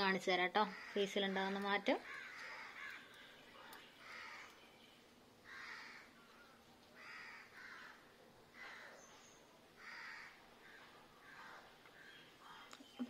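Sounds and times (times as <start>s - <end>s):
crow cawing: 0.6s - 3.2s, 4.0s - 4.6s, 5.4s - 6.1s, 7.0s - 9.0s, 9.8s - 12.6s.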